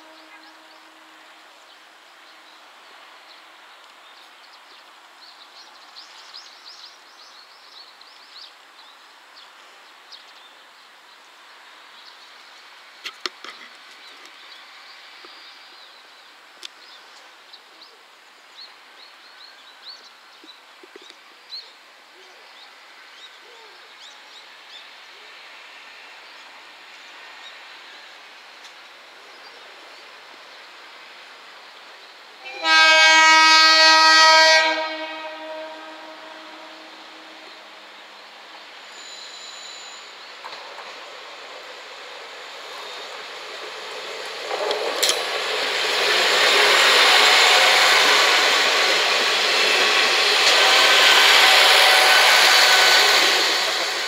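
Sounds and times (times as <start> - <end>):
train horn: 0.0 - 1.7, 32.4 - 37.9, 46.7 - 54.0.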